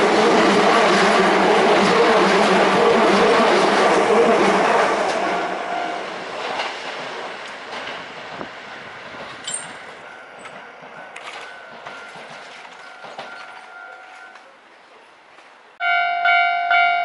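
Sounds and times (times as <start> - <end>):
train wheels clicking over rail joints: 6.3 - 14.5
level-crossing warning bell: 9.4 - 14.5, 15.8 - 17.0.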